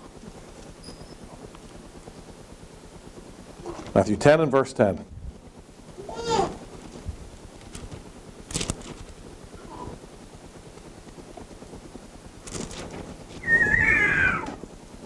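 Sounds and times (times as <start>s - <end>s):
pages rustling: 7.6s - 9.2s, 12.4s - 13.8s
wavering squeal falling in pitch: 13.4s - 14.6s.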